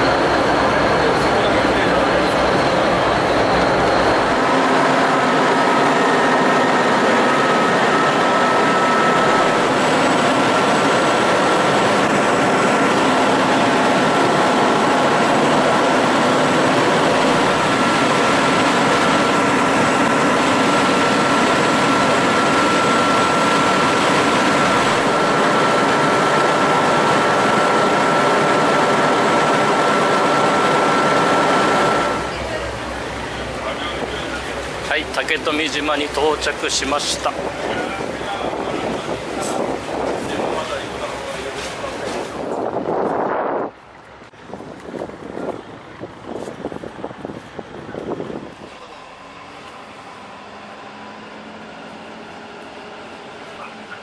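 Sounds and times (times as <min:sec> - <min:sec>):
thin high whine: 0:00.0 - 0:42.6
ferry engines droning: 0:00.0 - 0:54.0.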